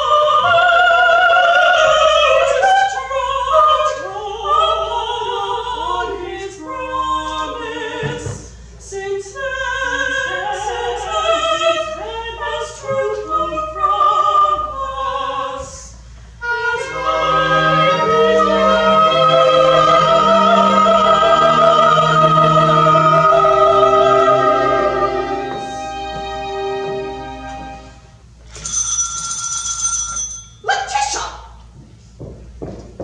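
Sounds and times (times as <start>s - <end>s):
women singing opera duet: 0.0s - 27.9s
instrumental accompaniment: 16.4s - 28.6s.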